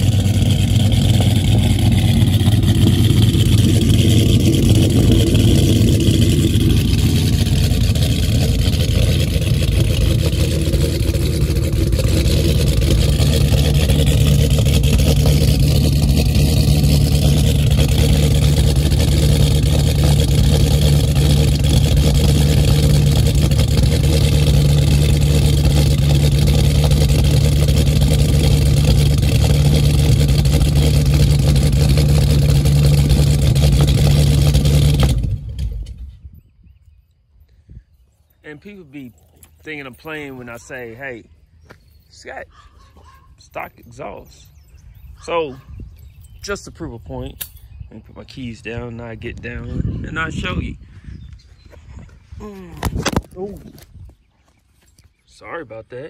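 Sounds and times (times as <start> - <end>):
car engine idling: 0.0 - 36.1.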